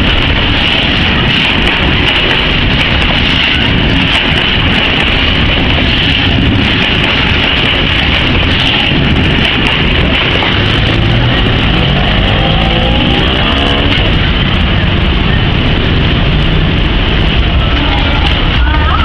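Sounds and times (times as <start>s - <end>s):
engines revving: 0.0s - 18.8s
freight wagons rolling past: 0.0s - 19.0s
road vehicles pulling away: 8.8s - 18.2s.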